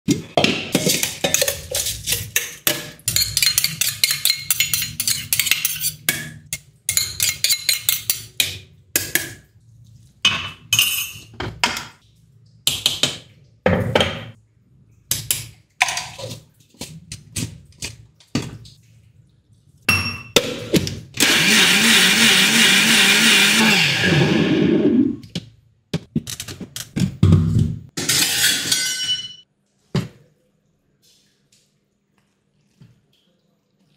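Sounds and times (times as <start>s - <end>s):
utensils clinking and knocking: 0.1s - 8.4s, 28.0s - 29.4s
electric mixer grinder running: 21.2s - 25.0s.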